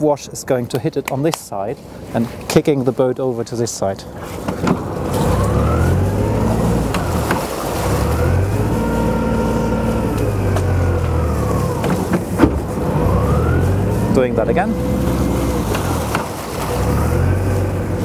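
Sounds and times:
prop wash churning water: 0:01.3 - 0:18.0
diesel engine revving: 0:04.8 - 0:18.0.

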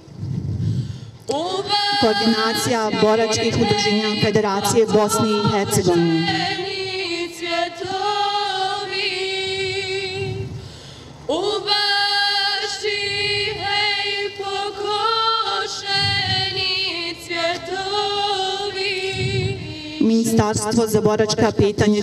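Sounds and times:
voice singing wavering notes: 0:01.3 - 0:07.4.

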